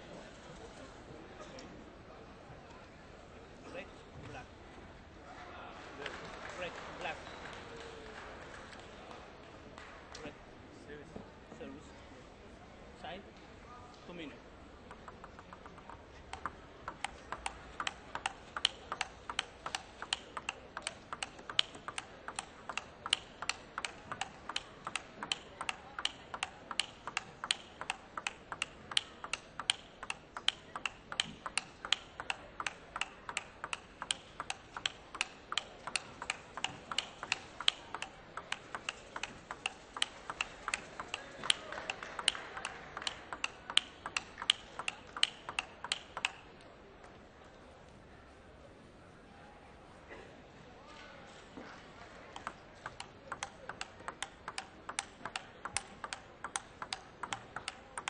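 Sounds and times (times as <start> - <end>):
table tennis ball ticking: 14.8 - 46.5, 52.3 - 58.0.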